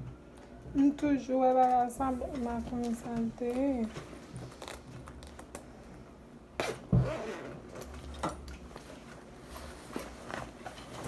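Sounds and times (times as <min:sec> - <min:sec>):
clothing rustles and clicks: 0:07.1 - 0:11.0.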